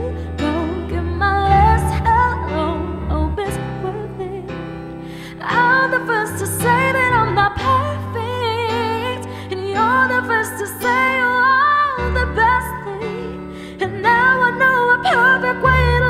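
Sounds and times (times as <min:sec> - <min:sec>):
electric keyboard chords: 0:00.0 - 0:16.0
woman singing pop ballad: 0:00.0 - 0:16.0.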